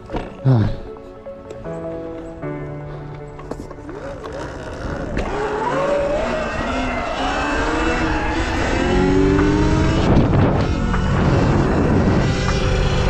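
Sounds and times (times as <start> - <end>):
tyre noise: 3.3 - 13.0
electric motor whine: 3.8 - 13.0
wind rush: 6.3 - 13.0.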